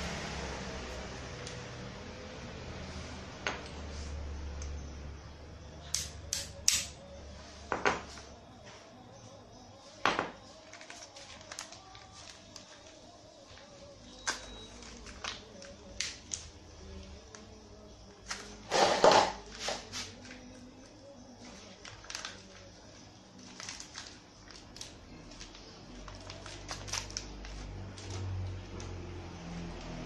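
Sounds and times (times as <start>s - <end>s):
metal clattering on tiles: 18.6s - 19.9s.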